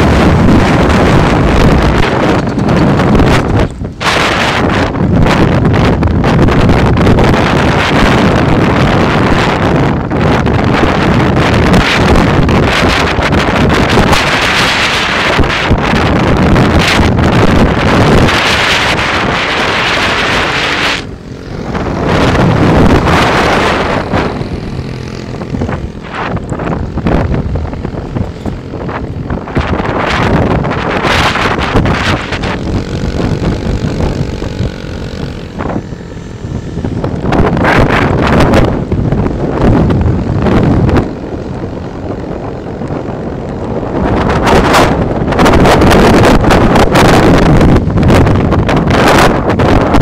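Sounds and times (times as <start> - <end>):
low motorbike ride noise: 0.0 - 50.0
wind buffeting microphone: 0.0 - 50.0
small engine running: 17.9 - 43.0.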